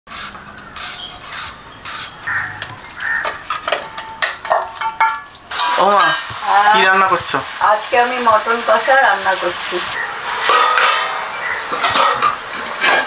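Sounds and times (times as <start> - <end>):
crows cawing: 0.5 - 4.0, 11.0 - 12.2
kitchen knocks and clatters: 2.4 - 6.4, 10.3 - 13.0.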